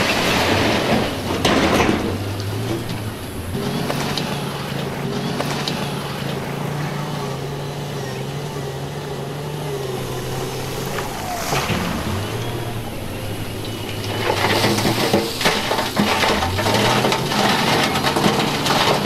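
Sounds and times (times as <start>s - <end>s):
heavy diesel engine running: 0.0s - 19.0s.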